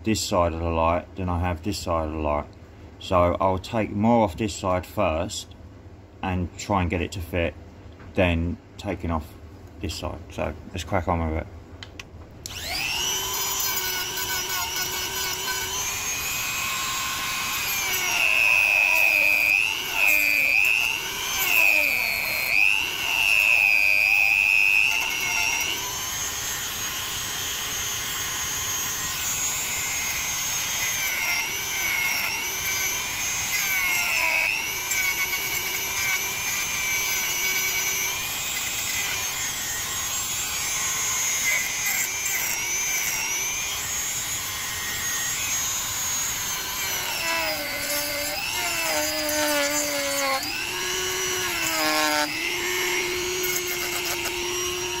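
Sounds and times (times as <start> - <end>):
rotary tool grinding plastic: 12.5 - 55.0.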